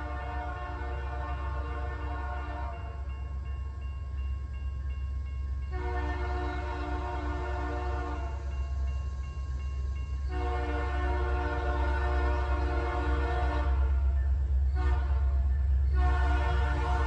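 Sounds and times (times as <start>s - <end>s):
locomotive air horn blasts: 0.0s - 3.0s, 5.7s - 8.4s, 10.3s - 14.1s, 14.8s - 17.0s.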